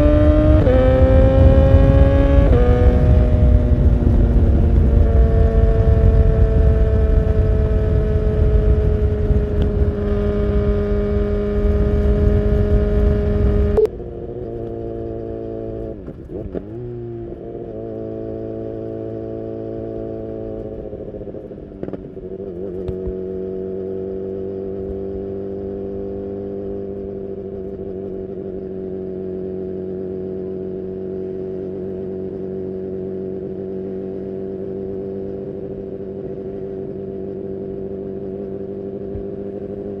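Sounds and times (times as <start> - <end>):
wind rush on microphone: 0.0 - 14.4
motorcycle engine running: 0.0 - 40.0.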